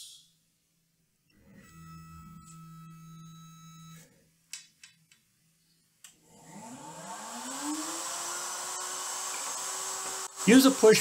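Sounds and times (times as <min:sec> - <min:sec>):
router motor whine: 0:06.2 - 0:11.0.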